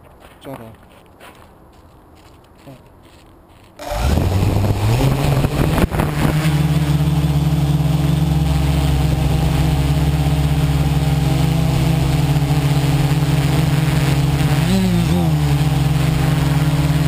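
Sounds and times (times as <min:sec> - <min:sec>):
quadcopter propellers spinning: 0:03.8 - 0:17.0.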